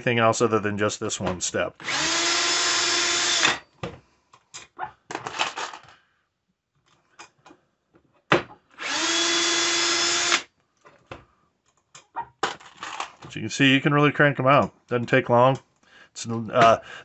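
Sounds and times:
cordless drill running: 1.8 - 3.6, 8.8 - 10.5.

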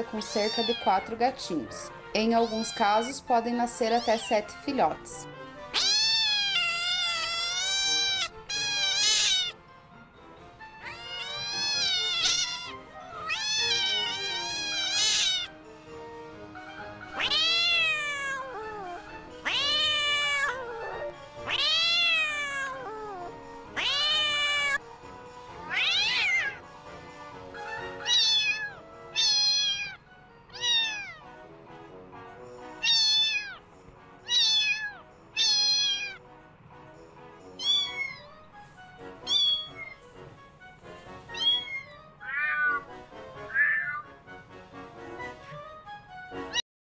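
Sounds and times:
faint background music: 0.0 - 46.6
cat meowing: 0.2 - 1.4, 2.2 - 4.6, 5.7 - 9.6, 10.7 - 15.5, 17.0 - 24.8, 25.6 - 26.6, 27.7 - 31.3, 32.8 - 33.6, 34.2 - 36.2, 37.5 - 38.5, 39.2 - 40.1, 41.3 - 44.2.

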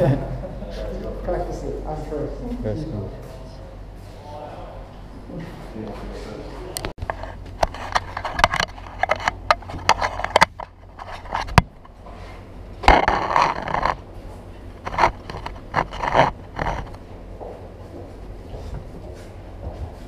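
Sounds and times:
camera scraping rub: 7.0 - 14.0, 14.8 - 17.1.

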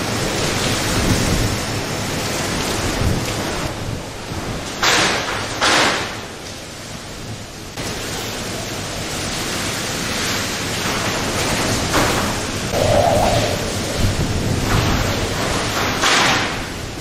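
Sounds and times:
heavy rain: 0.0 - 17.0
strong wind gusting: 12.5 - 17.0.

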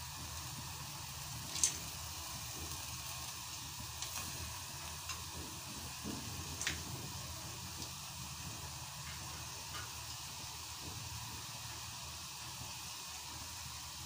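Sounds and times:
meat sizzling in pot: 0.0 - 14.0
lentils dropped with splashes: 1.5 - 1.8.

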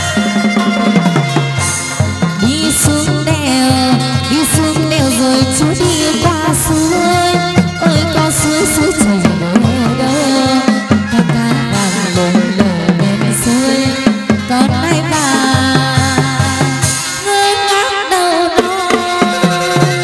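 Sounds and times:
drum and wooden clappers beat: 0.0 - 6.2
plucked string melody: 0.0 - 17.2.

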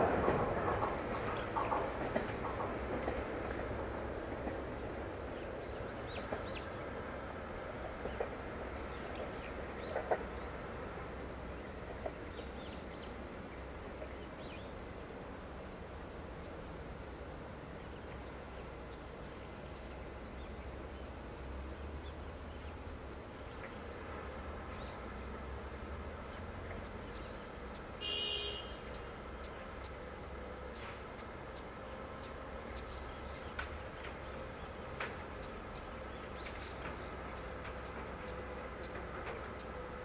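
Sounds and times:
train rumbling: 0.0 - 28.2, 28.8 - 40.0
birds chirping: 15.8 - 40.0.

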